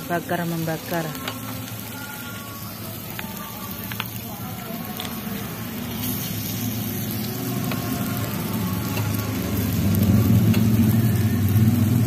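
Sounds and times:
meat sizzling on a grill plate: 0.0 - 12.0
low engine rumble: 3.0 - 12.0.

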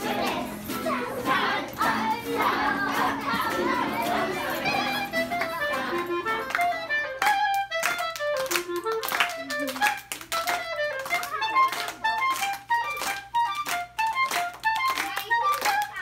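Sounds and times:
hand claps: 1.6 - 16.0
clarinet melody: 4.4 - 16.0.

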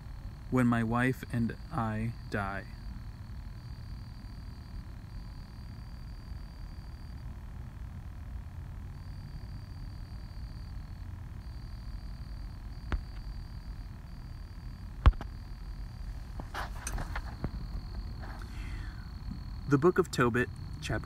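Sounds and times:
faint high whine: 0.0 - 21.0
rustling: 16.0 - 18.6.

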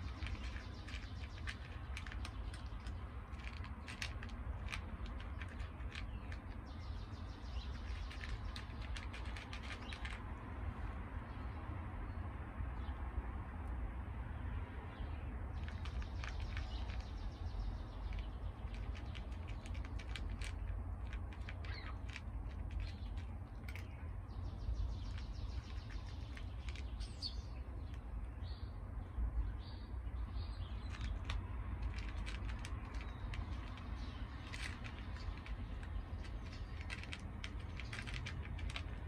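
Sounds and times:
cat crunching dry kibble: 0.0 - 10.4, 15.6 - 28.2, 30.0 - 39.0
bird chirping: 5.1 - 10.2, 14.9 - 20.7, 21.3 - 39.0.

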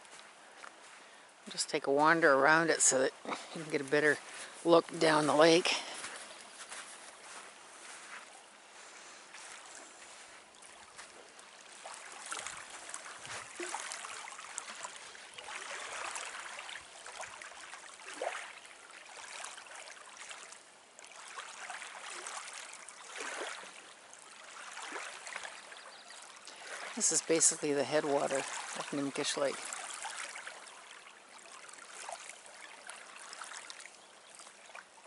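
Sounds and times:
footsteps on beach: 0.0 - 18.5, 26.4 - 30.4
waves lapping on gravel shore: 0.0 - 34.8.

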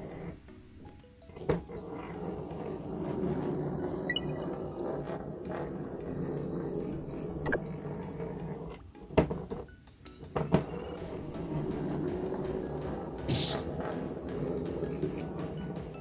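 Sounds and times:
coil train rattling and rumbling: 10.2 - 16.0.

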